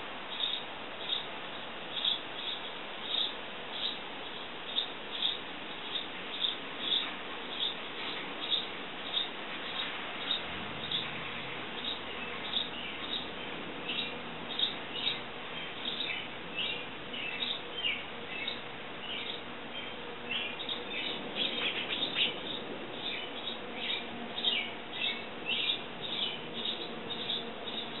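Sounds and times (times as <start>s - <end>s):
sparrows chirping: 0.0s - 28.0s.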